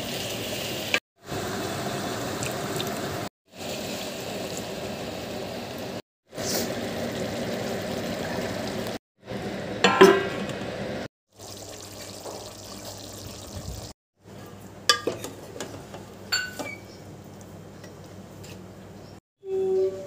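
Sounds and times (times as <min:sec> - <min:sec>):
curry simmering: 0:11.3 - 0:14.0.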